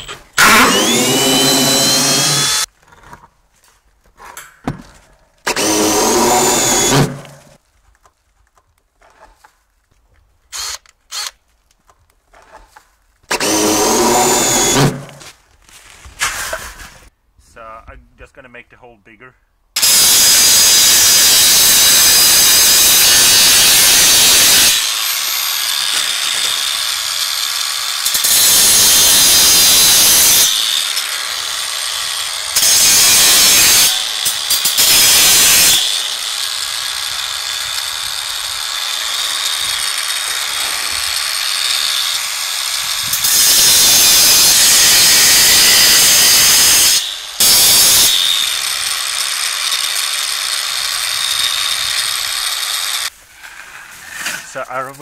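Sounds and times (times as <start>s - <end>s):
angle grinder cutting wire: 0.0s - 2.7s, 5.4s - 7.6s, 10.5s - 11.4s, 13.3s - 15.3s, 19.8s - 53.1s
grinder motor whine: 0.0s - 2.7s, 19.8s - 53.1s.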